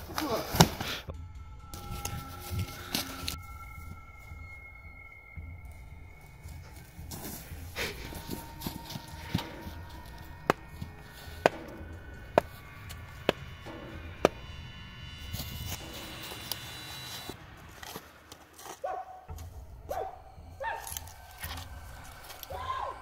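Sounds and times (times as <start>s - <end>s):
held tones: 1.5s - 17.4s.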